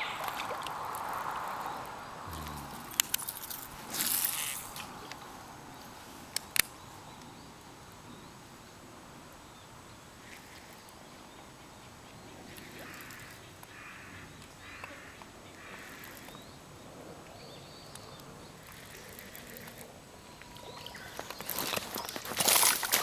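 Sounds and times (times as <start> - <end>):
brief rustle: 2.8 - 5.2.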